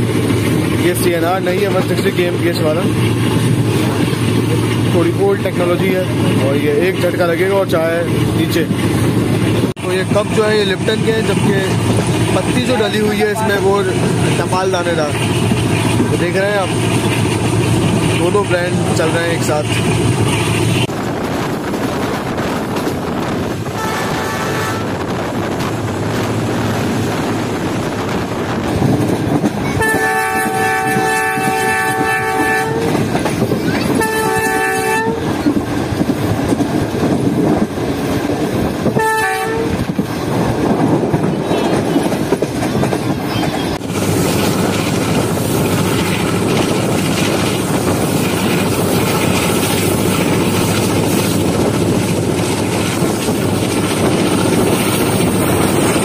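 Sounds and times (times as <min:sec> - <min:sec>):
train rumble and wheel clatter: 0:00.0 - 0:56.0
locomotive air horn blasts: 0:23.8 - 0:25.0, 0:29.8 - 0:33.0, 0:34.0 - 0:35.3, 0:39.0 - 0:39.8.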